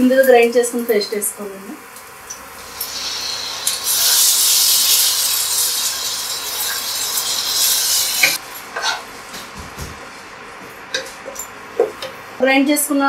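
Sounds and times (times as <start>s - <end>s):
paste sizzling in hot oil: 0.9s - 8.4s.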